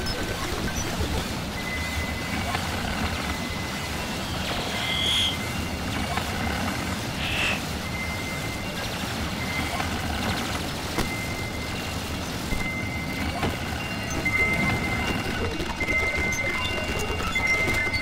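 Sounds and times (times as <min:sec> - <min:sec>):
thin high electronic beeping: 0:00.5 - 0:10.2
short electronic chirps: 0:03.3 - 0:05.8, 0:07.1 - 0:08.5.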